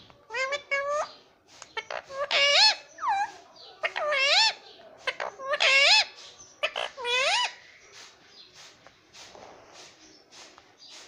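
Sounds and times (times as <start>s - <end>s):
parakeet calls: 0.2s - 7.6s.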